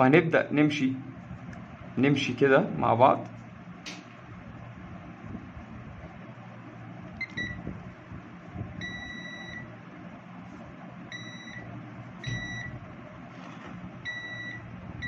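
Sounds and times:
multimeter continuity beeps: 7.2 - 7.6, 8.8 - 9.7, 11.1 - 12.8, 14.0 - 14.7.

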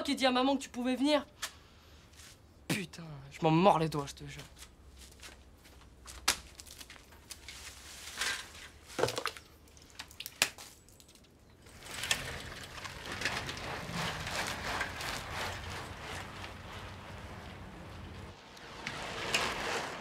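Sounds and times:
bicycle riding on road: 11.6 - 20.0.

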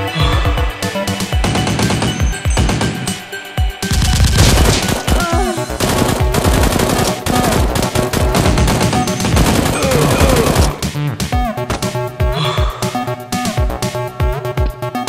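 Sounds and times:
background music: 0.0 - 15.0
rapid automatic gunfire: 1.4 - 3.2, 3.8 - 10.9.

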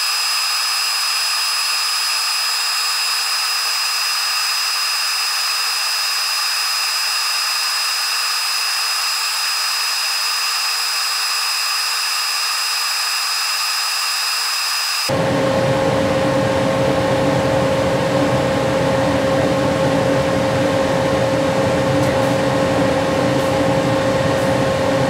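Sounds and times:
laser cutter high-pitched whir: 0.0 - 17.0.

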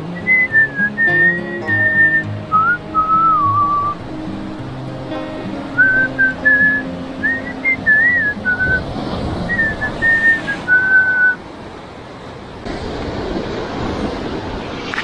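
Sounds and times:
sea surf: 0.0 - 15.0
person whistling a tune: 0.1 - 4.0, 5.8 - 8.8, 9.5 - 11.4.

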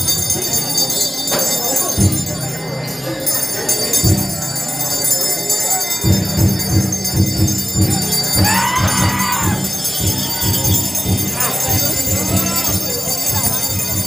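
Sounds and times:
bells jingling: 0.0 - 14.0
drum beating: 6.0 - 14.0.

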